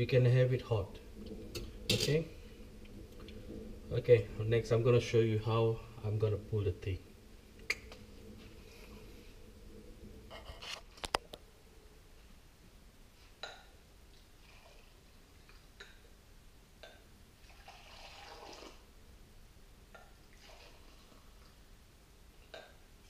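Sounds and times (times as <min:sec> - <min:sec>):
liquid pouring into glass: 0:17.4 - 0:18.8.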